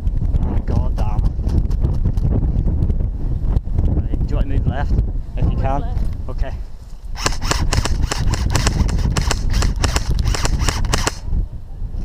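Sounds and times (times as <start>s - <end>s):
airsoft rifle rapid shots: 7.2s - 11.2s.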